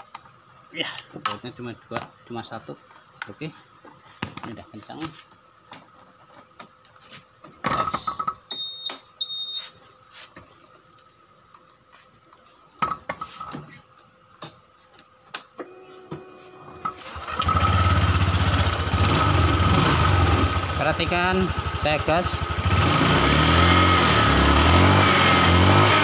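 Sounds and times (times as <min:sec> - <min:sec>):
short high beeps: 0:08.5 - 0:09.8
scooter engine idling: 0:17.0 - 0:23.6.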